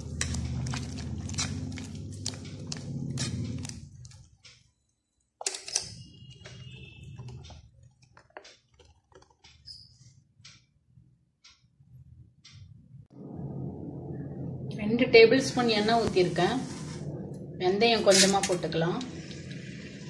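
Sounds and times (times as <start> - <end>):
low steady hum: 11.8 - 20.0.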